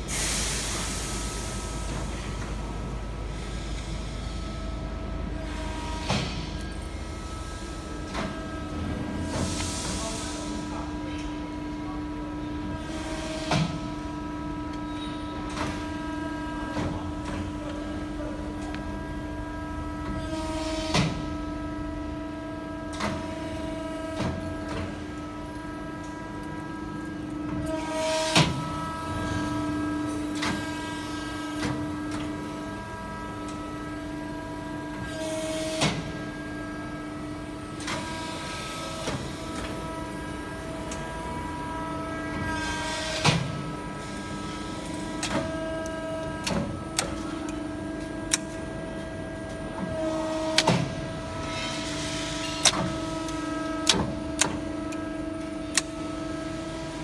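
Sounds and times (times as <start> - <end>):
hydraulic pump humming whine: 0.0 - 57.0
mechanical clicks and knocks: 55.7 - 56.0.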